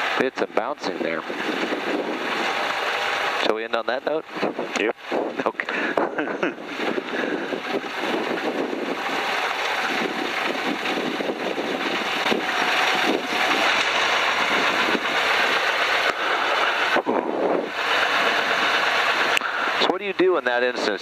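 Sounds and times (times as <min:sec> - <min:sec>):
propeller plane engine running: 0:00.0 - 0:21.0
wind rushing on microphone: 0:00.0 - 0:21.0.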